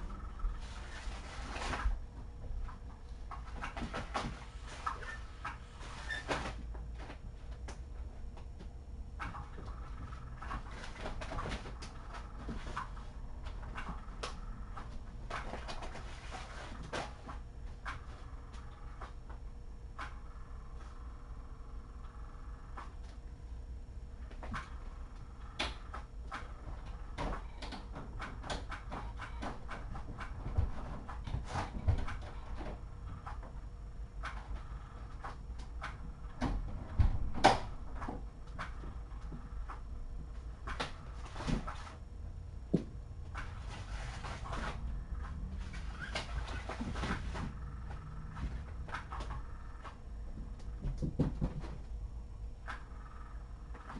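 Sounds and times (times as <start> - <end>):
steady low hum: 0.0 - 53.9
kittens knocking on hard floor: 50.4 - 51.8.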